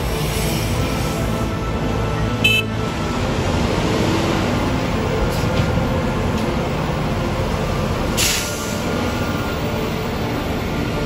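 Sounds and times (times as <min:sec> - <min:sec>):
excavator diesel engine running: 0:00.0 - 0:11.0
short air hiss: 0:08.2 - 0:08.8.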